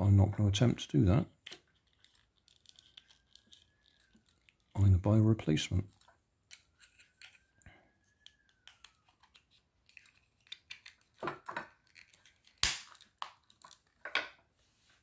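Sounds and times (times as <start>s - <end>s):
plastic clicks and scrapes: 1.4s - 4.8s, 5.9s - 7.6s, 8.2s - 14.2s.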